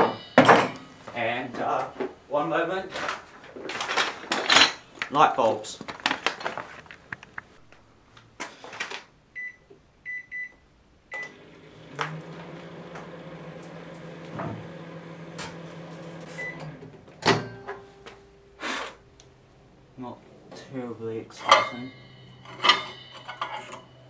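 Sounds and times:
keypad beeps: 9.4s - 11.3s
microwave oven humming: 10.1s - 24.0s
microwave door banging shut: 17.2s - 17.7s.

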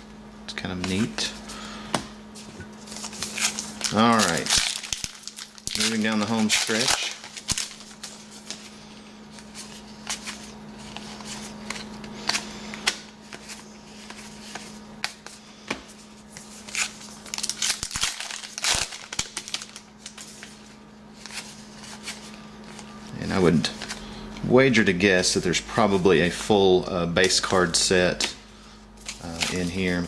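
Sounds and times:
steady low hum: 0.0s - 30.0s
card wrappers tearing and crinkling: 2.8s - 8.7s, 16.3s - 20.6s, 29.0s - 30.0s.

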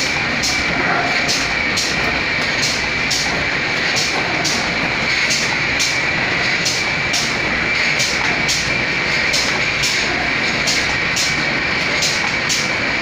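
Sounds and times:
machine high-pitched whine: 0.0s - 13.0s.

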